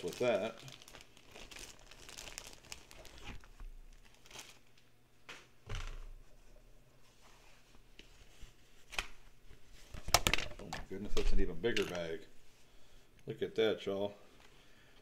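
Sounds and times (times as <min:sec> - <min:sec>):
plastic bag crinkling: 0:00.0 - 0:04.9.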